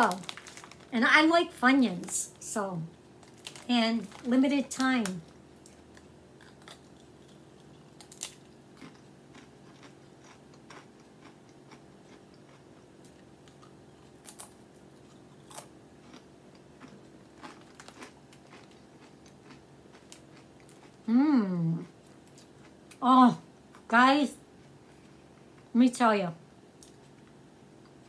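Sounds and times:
potato chip crunching: 0:00.0 - 0:01.0, 0:03.2 - 0:21.0.

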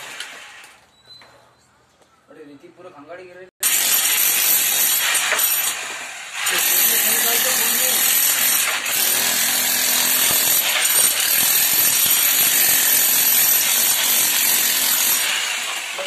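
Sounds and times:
electric chipping hammer on brick: 0:03.6 - 0:16.0.

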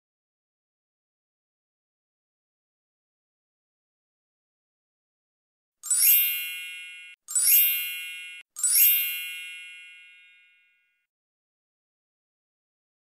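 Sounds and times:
sparkling chime sound effect: 0:05.8 - 0:10.8.

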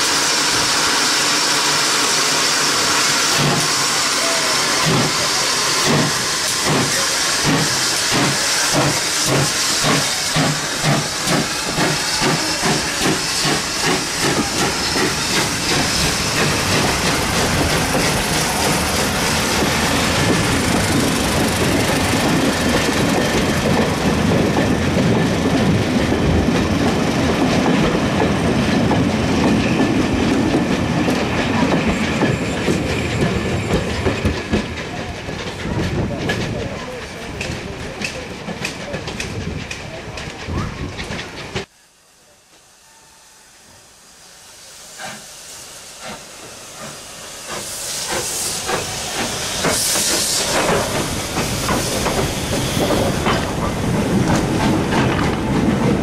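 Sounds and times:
clickety-clack of train wheels: 0:00.0 - 0:41.7, 0:45.0 - 0:45.3, 0:46.0 - 0:56.0
hissing steam: 0:00.0 - 0:56.0
steam locomotive exhaust beats: 0:00.0 - 0:56.0.

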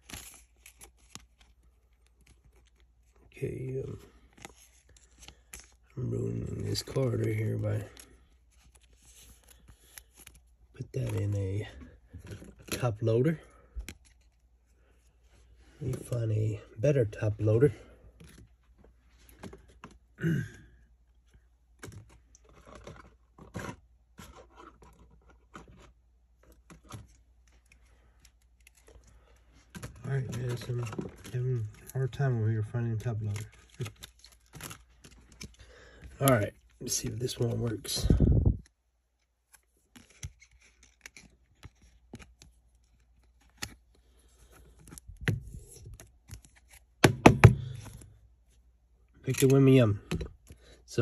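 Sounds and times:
card sliding rustle: 0:04.1 - 0:05.8, 0:06.6 - 0:11.4
plastic clicks and scrapes: 0:39.2 - 0:43.8.

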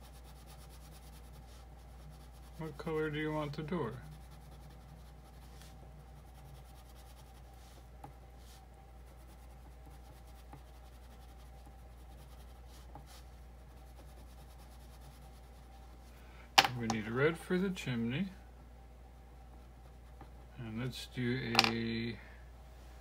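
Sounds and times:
crayon scratching on paper: 0:00.0 - 0:15.7.

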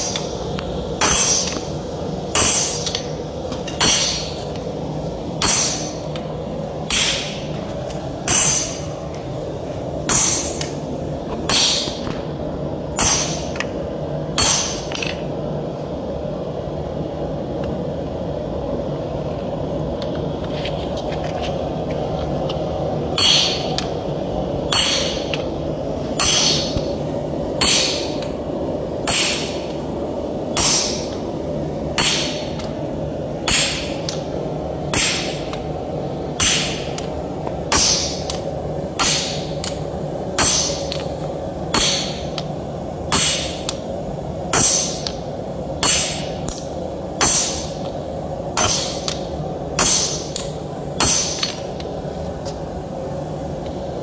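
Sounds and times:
steady low hum: 0:00.0 - 0:54.0
sledgehammer striking steel on anvil: 0:01.0 - 0:01.7, 0:02.3 - 0:04.5, 0:05.4 - 0:06.2, 0:06.9 - 0:07.5, 0:08.2 - 0:08.9, 0:10.0 - 0:10.7, 0:11.4 - 0:12.1, 0:13.0 - 0:13.6, 0:14.3 - 0:15.2, 0:23.2 - 0:23.9, 0:24.7 - 0:25.4, 0:26.2 - 0:27.0, 0:27.6 - 0:28.4, 0:29.0 - 0:29.8, 0:30.5 - 0:31.2, 0:32.0 - 0:32.7, 0:33.4 - 0:34.2, 0:34.9 - 0:35.6, 0:36.4 - 0:37.1, 0:37.7 - 0:38.4, 0:39.0 - 0:39.8, 0:40.4 - 0:41.1, 0:41.7 - 0:42.4, 0:43.1 - 0:43.8, 0:44.5 - 0:45.2, 0:45.8 - 0:47.9, 0:48.5 - 0:51.7.

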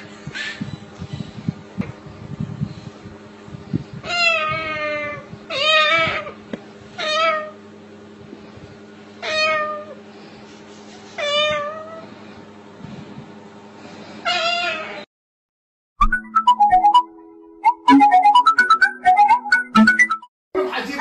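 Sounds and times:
parrot imitating cat meow: 0:04.0 - 0:06.4, 0:07.0 - 0:07.6, 0:09.2 - 0:10.0, 0:14.3 - 0:15.0.

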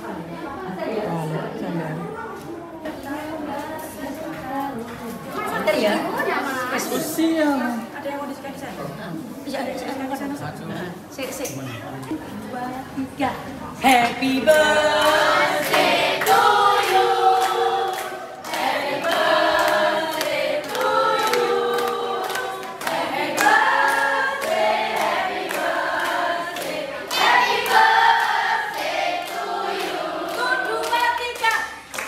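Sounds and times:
crowd singing: 0:13.7 - 0:31.2.

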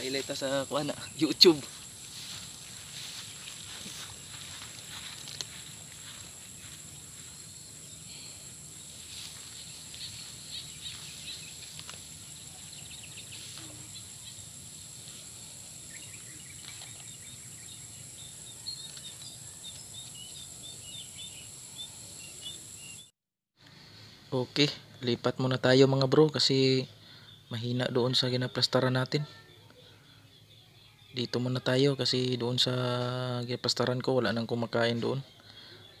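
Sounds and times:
high-pitched insect drone: 0:00.0 - 0:23.0
bird chirping rapidly: 0:08.7 - 0:14.7.

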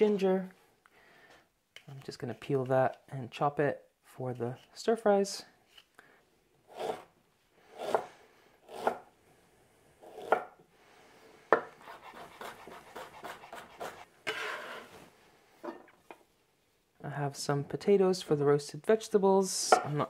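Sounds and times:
knife chopping on wooden board: 0:08.7 - 0:09.0.

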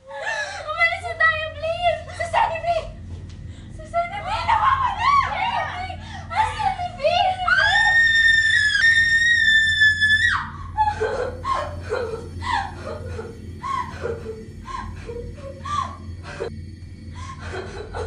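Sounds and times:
high scream: 0:07.3 - 0:10.6
young women laughing: 0:10.8 - 0:16.5, 0:17.2 - 0:18.0.

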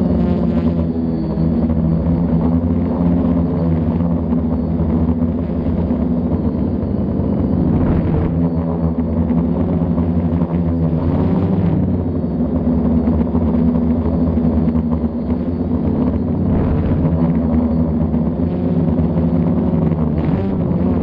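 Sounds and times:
quadcopter motors buzzing: 0:00.0 - 0:21.0.

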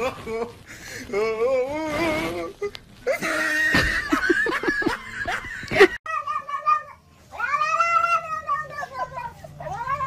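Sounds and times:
person laughing hard: 0:03.0 - 0:06.0.

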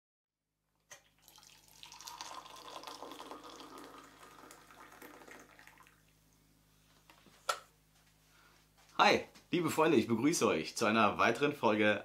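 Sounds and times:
liquid pouring into a mug: 0:00.9 - 0:06.2.

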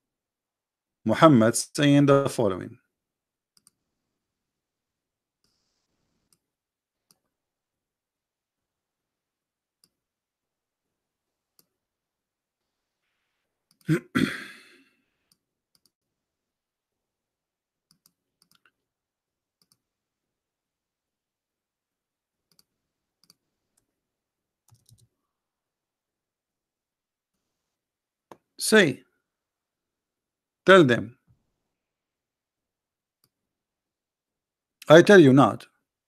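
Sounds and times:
computer mouse clicks: 0:03.5 - 0:03.8, 0:06.2 - 0:07.3, 0:09.8 - 0:10.0, 0:11.5 - 0:11.8, 0:15.3 - 0:16.0, 0:17.9 - 0:18.8, 0:19.6 - 0:19.8, 0:22.5 - 0:23.9, 0:24.6 - 0:25.1.

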